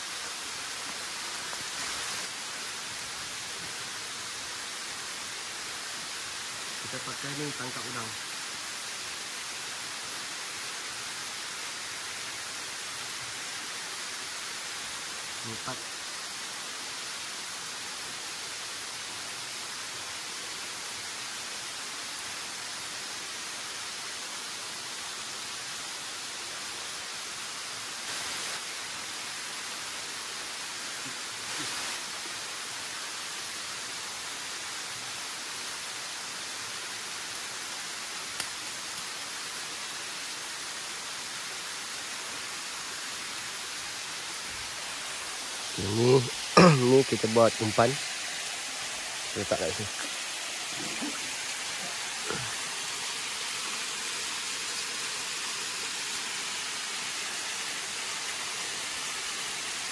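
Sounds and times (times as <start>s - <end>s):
waterfall and stream rushing: 0.0s - 59.9s.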